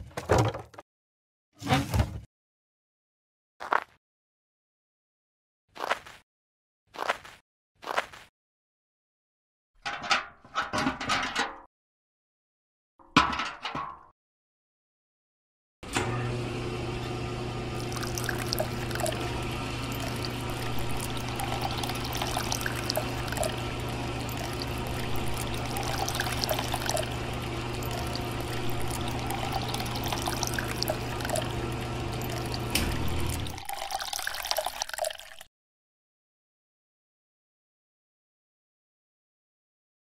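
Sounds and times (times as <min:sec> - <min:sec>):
water pouring and splashing: 0:17.8 - 0:35.5
water trickling: 0:17.8 - 0:35.5.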